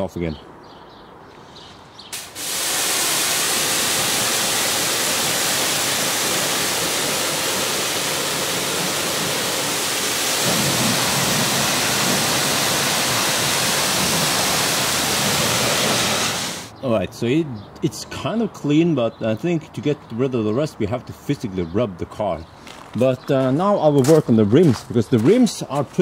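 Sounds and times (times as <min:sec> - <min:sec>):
pressure washer spraying water: 0:02.1 - 0:16.7.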